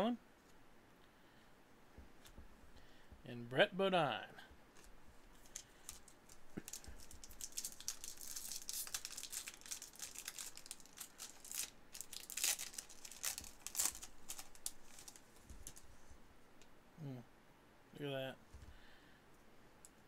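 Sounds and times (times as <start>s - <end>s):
wrapper tearing and crinkling: 5.4s - 15.8s.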